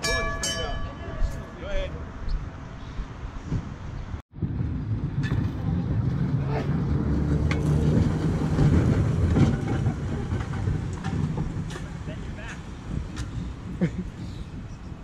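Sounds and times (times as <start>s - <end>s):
streetcar running noise: 0.0s - 15.0s
wheels clicking over rail joints: 5.1s - 15.0s.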